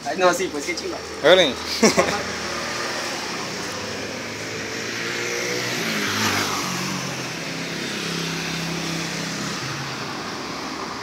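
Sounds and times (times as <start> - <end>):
traffic engine hum: 0.0 - 11.0
car driving past: 1.0 - 11.0.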